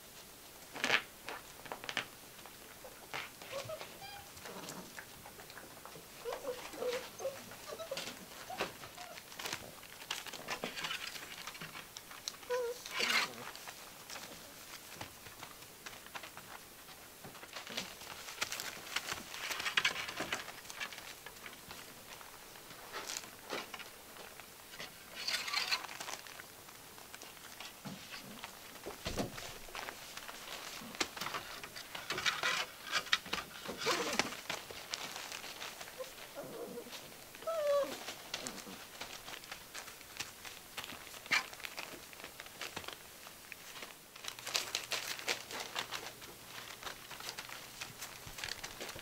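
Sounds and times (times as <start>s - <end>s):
puppies mouthing and rustling: 1.8s - 49.0s
high puppy whine: 2.8s - 9.6s, 12.4s - 14.6s, 33.6s - 39.0s.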